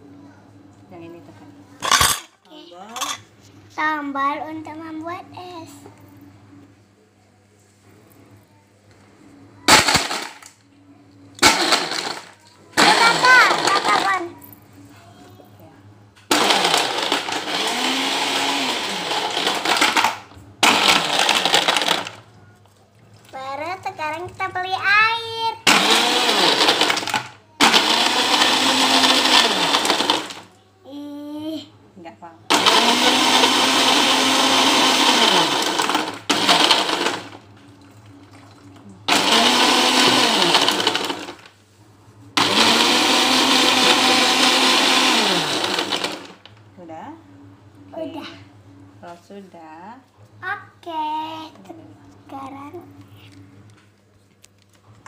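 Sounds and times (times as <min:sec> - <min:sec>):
blender crushing ice: 0:01.8 - 0:02.3, 0:09.7 - 0:10.6, 0:11.4 - 0:14.3, 0:16.3 - 0:22.3, 0:25.6 - 0:30.5, 0:32.5 - 0:37.4, 0:38.5 - 0:41.5, 0:42.4 - 0:46.6.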